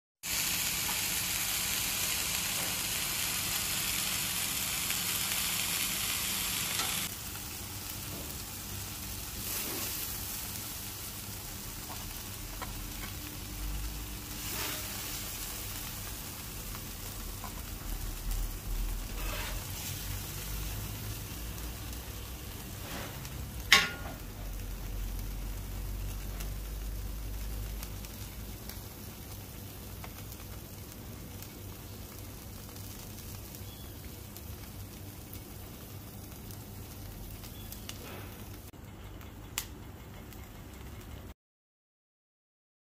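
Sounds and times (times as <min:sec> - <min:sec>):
burgers sizzling on griddle: 0:00.2 - 0:38.7
metal spatula scraping and tapping: 0:19.1 - 0:19.8, 0:23.7 - 0:24.2.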